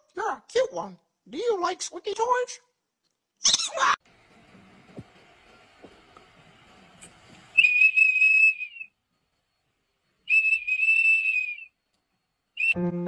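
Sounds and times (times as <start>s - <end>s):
high-pitched whistles: 7.5s - 11.9s, 12.5s - 13.0s.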